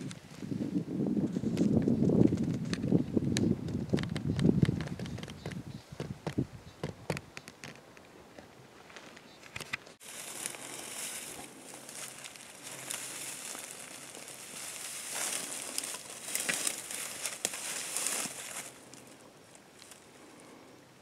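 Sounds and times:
rustling against microphone: 0:08.8 - 0:20.7.

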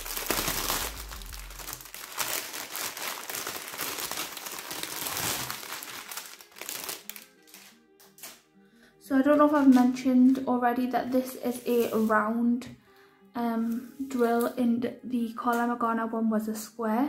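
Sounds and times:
plastic wrapping crinkling: 0:00.0 - 0:08.4, 0:09.2 - 0:10.0, 0:11.5 - 0:12.2.

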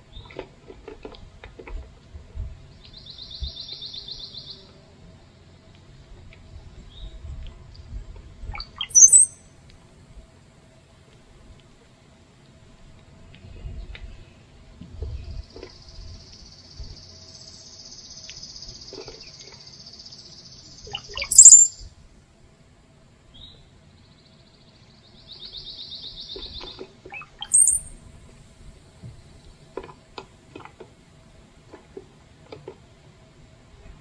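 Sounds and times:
sharp high bird chirp: 0:08.6 - 0:09.4, 0:20.8 - 0:21.9, 0:27.2 - 0:28.0
songbird buzzy trill: 0:08.6 - 0:09.5, 0:15.7 - 0:21.9, 0:25.5 - 0:28.0.

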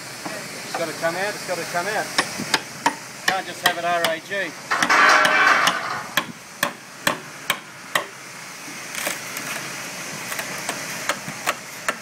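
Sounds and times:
hammer tapping on fibreglass: 0:02.2 - 0:08.1.

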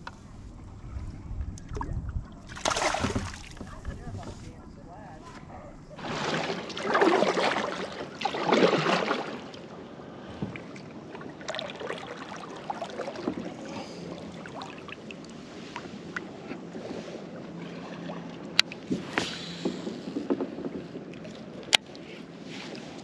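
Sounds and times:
water lapping: 0:00.2 - 0:23.0
water rushing: 0:01.7 - 0:04.3, 0:05.9 - 0:09.8, 0:10.6 - 0:16.2.

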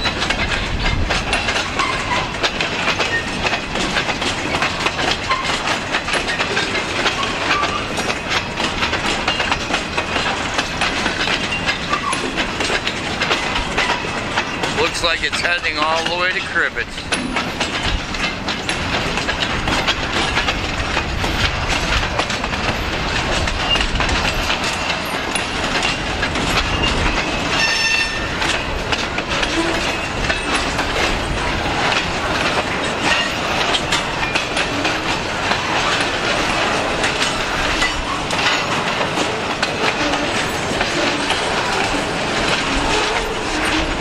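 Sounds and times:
freight train rumbling: 0:00.0 - 0:44.0
steel wheels clanking over rail joints: 0:00.0 - 0:44.0
high-pitched wheel squeal: 0:27.6 - 0:28.3.

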